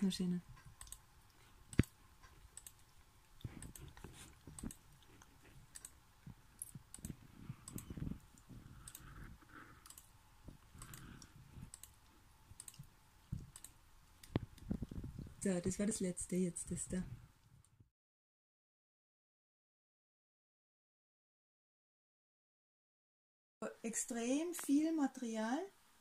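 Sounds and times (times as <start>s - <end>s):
computer mouse clicks: 0.6s - 15.1s
soft low thumps: 5.4s - 9.5s.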